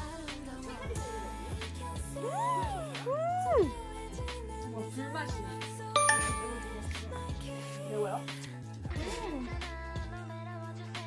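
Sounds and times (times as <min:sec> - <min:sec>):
bright ringing accent: 0:06.0 - 0:07.1
music with held tones: 0:06.0 - 0:07.8.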